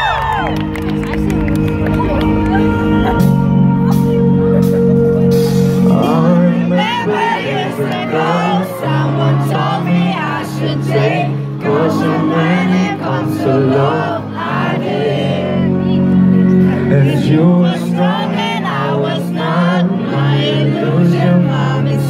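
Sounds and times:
man singing: 5.7s - 14.3s, 16.6s - 22.0s.

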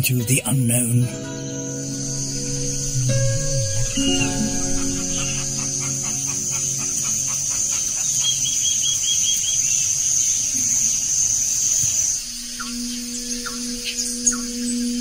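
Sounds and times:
high-pitched drone: 0.0s - 8.6s, 12.3s - 15.0s
birds calling: 0.0s - 15.0s.

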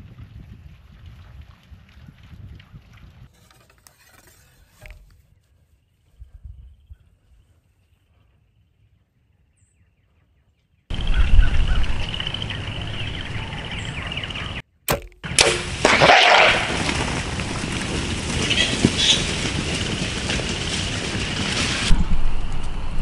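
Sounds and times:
wind rumbling on microphone: 0.0s - 3.4s, 6.1s - 7.5s, 10.9s - 14.6s, 15.7s - 23.0s
bow shot snap: 14.9s - 16.7s
hogs scattering rush: 15.3s - 22.0s.

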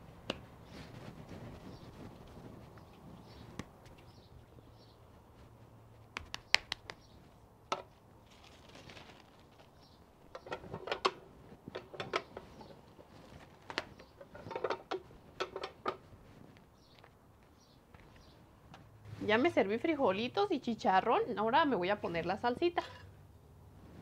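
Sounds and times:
plastic sheets crinkling: 8.2s - 9.9s
tortilla press clicking and clacking: 13.6s - 16.0s.

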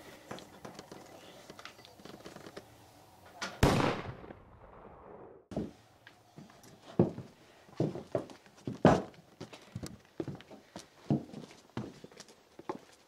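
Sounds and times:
loud gunshot ringing: 3.6s - 4.4s
footsteps: 5.5s - 13.0s.

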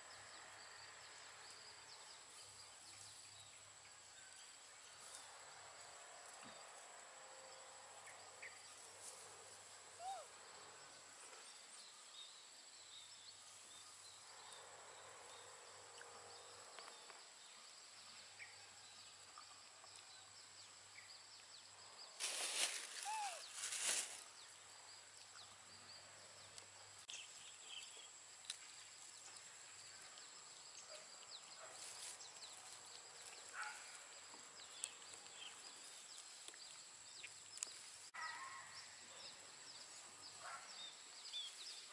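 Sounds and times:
soft hiss: 22.2s - 24.4s.

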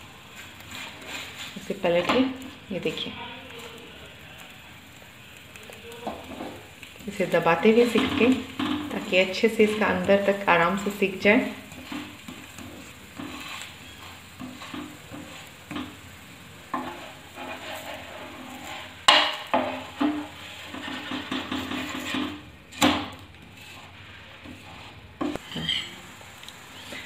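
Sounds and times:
wooden spatula scraping a pan: 0.2s - 4.5s, 6.0s - 26.2s.

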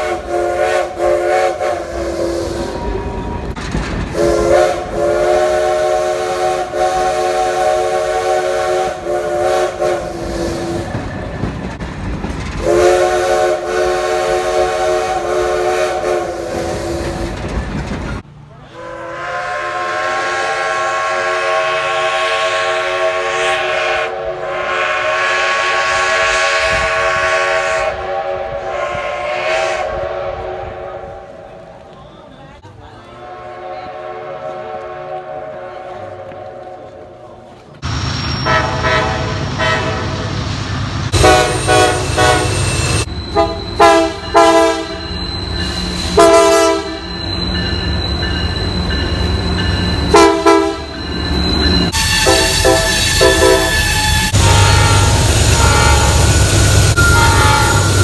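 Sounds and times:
steam locomotive chime whistle: 0.0s - 3.5s, 4.2s - 11.0s, 12.6s - 17.4s, 18.7s - 31.3s, 37.8s - 40.3s, 41.1s - 58.0s
moving train rumble and clatter: 0.0s - 58.0s.

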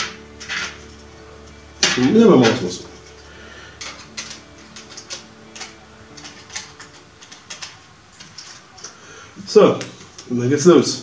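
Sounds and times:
model train coaches clicking: 3.8s - 10.3s.

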